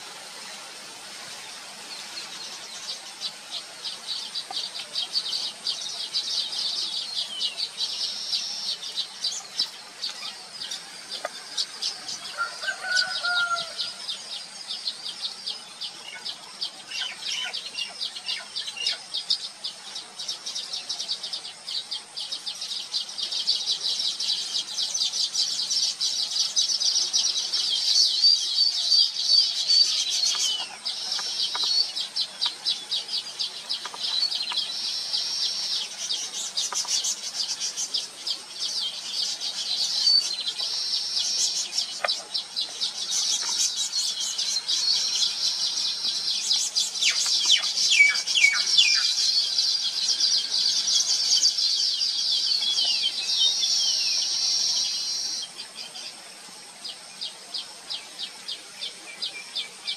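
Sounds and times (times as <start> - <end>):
weaver birds chattering: 0.0 - 59.9.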